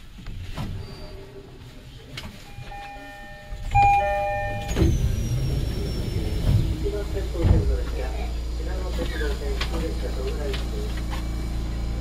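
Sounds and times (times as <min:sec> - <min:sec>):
electronic chime tones: 0:02.5 - 0:05.9.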